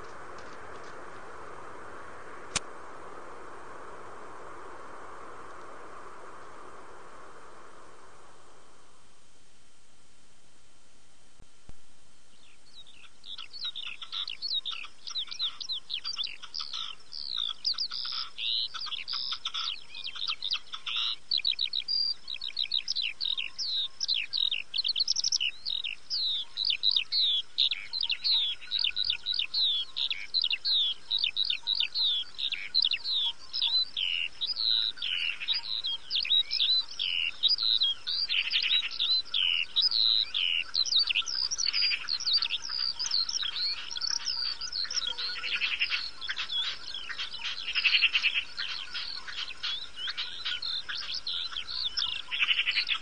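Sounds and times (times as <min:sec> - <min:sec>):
small birds chirping: 0:12.2 - 0:53.0.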